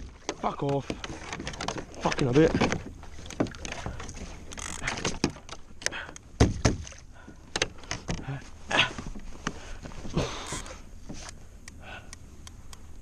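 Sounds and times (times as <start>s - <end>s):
paddle knocking on plastic hull: 0.0s - 4.0s, 6.4s - 7.0s.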